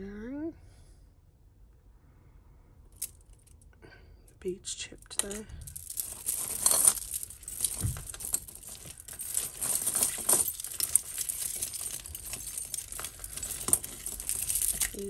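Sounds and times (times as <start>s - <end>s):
jewellery beads clinking and rattling: 2.9s - 3.6s, 5.0s - 15.0s.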